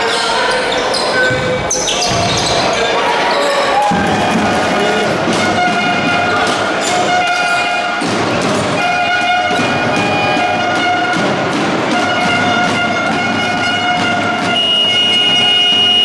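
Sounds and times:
crowd noise: 0:00.0 - 0:16.0
basketball bouncing on court: 0:01.2 - 0:02.8
horn blowing long notes: 0:08.8 - 0:16.0.

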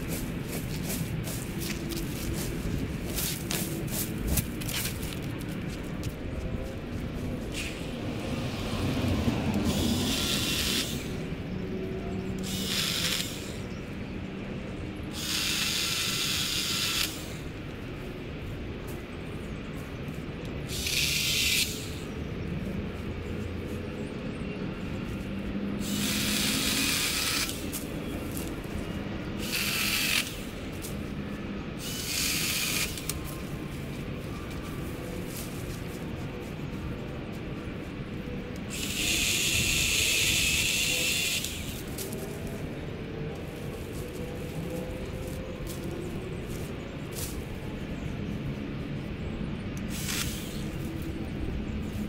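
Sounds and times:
cordless cutting tool cutting branches: 0:07.5 - 0:11.3, 0:12.4 - 0:13.8, 0:15.1 - 0:17.6, 0:20.7 - 0:22.1, 0:25.8 - 0:28.6, 0:29.3 - 0:31.0, 0:31.8 - 0:33.4, 0:38.5 - 0:42.5, 0:49.8 - 0:51.1.

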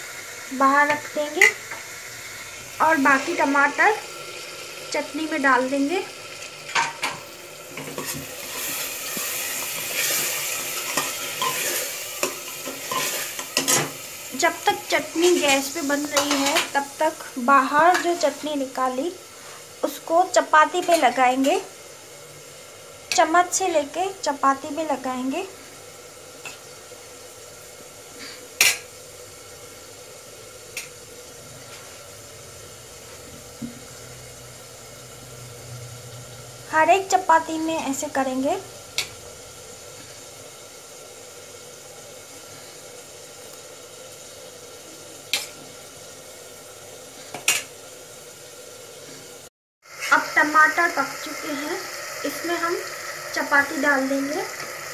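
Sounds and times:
food sizzling in hot oil: 0:00.0 - 0:54.9
metal spoon scraping a pot: 0:07.8 - 0:13.9.

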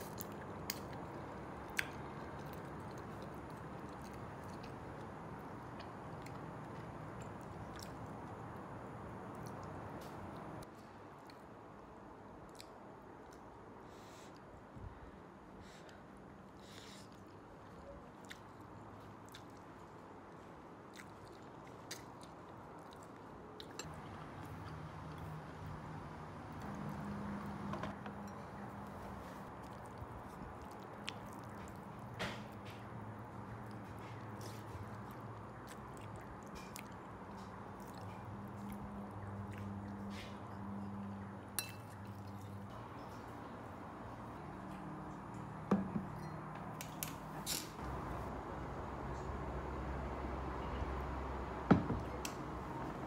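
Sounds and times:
person chewing noodles: 0:00.0 - 0:08.4, 0:16.5 - 0:25.4, 0:28.6 - 0:32.2, 0:33.2 - 0:40.8.

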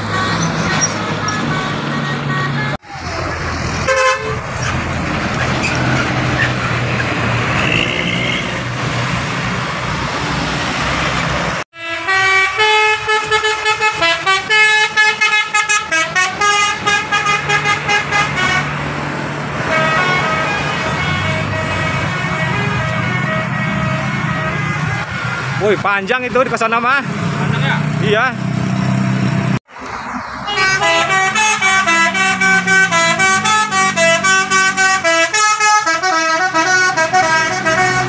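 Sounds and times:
multi-trumpet bus horn melody: 0:00.0 - 0:02.8, 0:03.8 - 0:04.6, 0:11.7 - 0:18.8, 0:19.6 - 0:25.4, 0:30.4 - 0:38.0
bus engine and road noise: 0:00.0 - 0:38.0.

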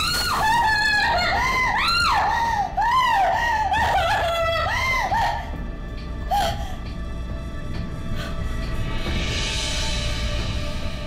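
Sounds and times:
woman screaming: 0:00.0 - 0:05.5.

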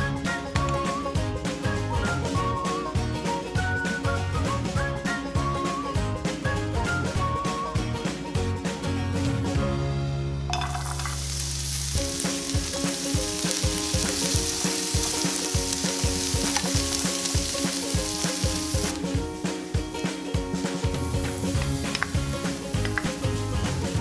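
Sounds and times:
background music with beat: 0:00.0 - 0:24.0
carrots sizzling in oil: 0:10.6 - 0:24.0.

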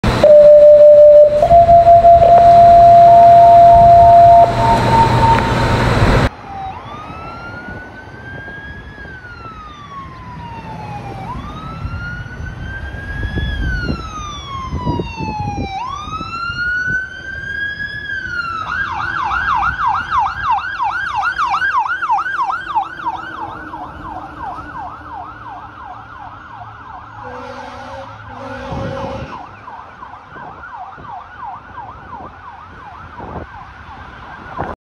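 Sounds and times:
low-pitched horn blasts: 0:00.0 - 0:06.3, 0:27.2 - 0:29.5
fire engine siren: 0:00.0 - 0:34.8.

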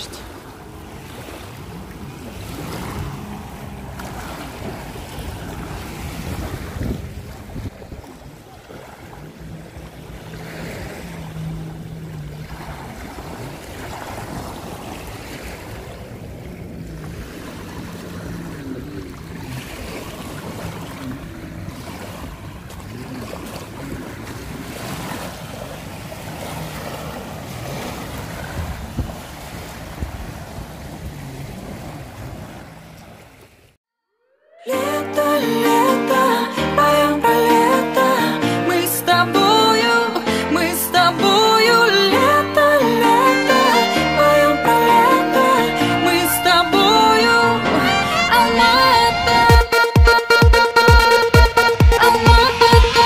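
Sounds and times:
wind on microphone: 0:00.0 - 0:32.9, 0:48.3 - 0:49.8
motor boat engine drone: 0:00.0 - 0:33.8
small waves on pebble shore: 0:00.0 - 0:33.8.

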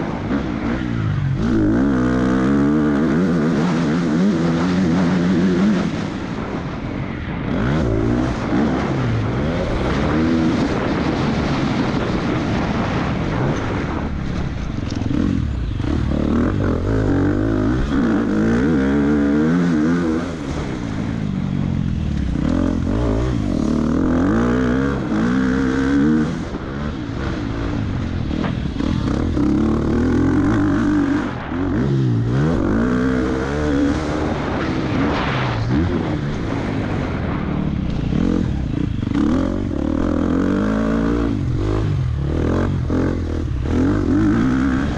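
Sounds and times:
motorcycle engine revving: 0:00.0 - 0:44.9.

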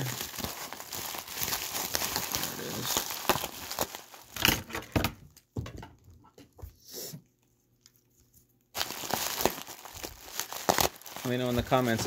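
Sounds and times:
bubble wrap crinkling: 0:00.0 - 0:04.7, 0:08.7 - 0:12.0.

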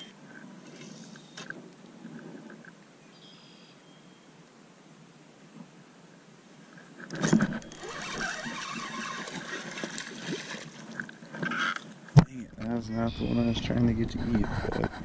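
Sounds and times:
fishing reel cranking: 0:07.5 - 0:09.3.

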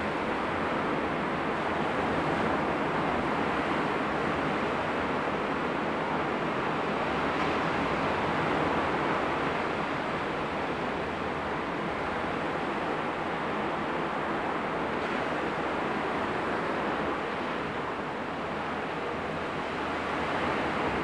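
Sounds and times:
wind: 0:00.0 - 0:21.0.

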